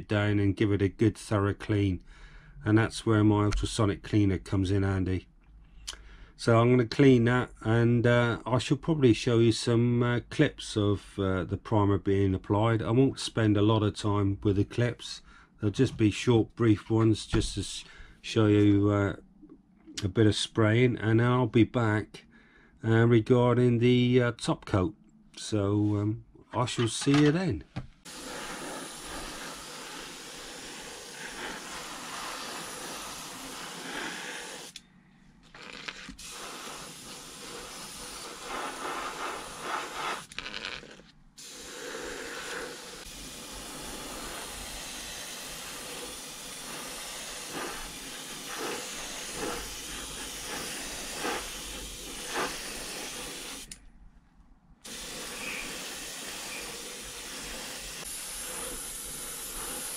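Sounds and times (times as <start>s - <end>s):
airbrush spraying paint: 28.0s - 34.8s, 35.6s - 53.7s, 54.8s - 59.9s.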